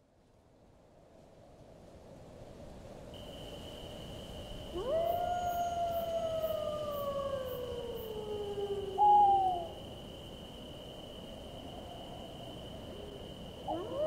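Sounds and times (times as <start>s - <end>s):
wolf howling: 4.7s - 9.9s, 12.9s - 14.0s.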